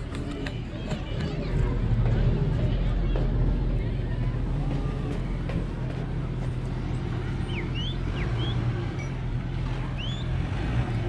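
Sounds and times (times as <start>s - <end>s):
bird chirps: 7.5s - 8.6s.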